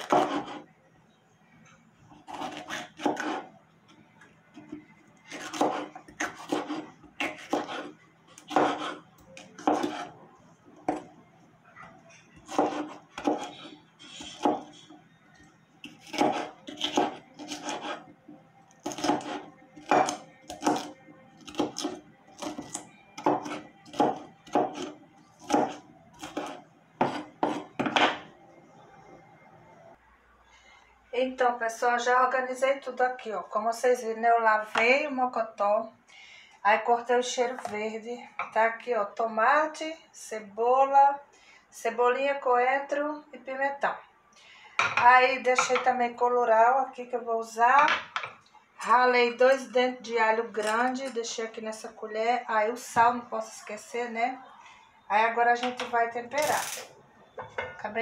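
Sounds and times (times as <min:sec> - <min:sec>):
knife chopping on wooden board: 0:00.0 - 0:00.6, 0:02.3 - 0:03.4, 0:05.3 - 0:10.1, 0:12.5 - 0:14.8, 0:15.9 - 0:18.0, 0:18.8 - 0:28.2.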